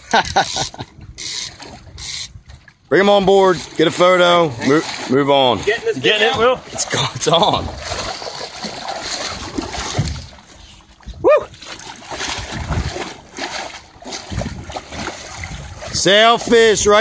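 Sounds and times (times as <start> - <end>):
fish thrashing in water: 3.6 - 17.0.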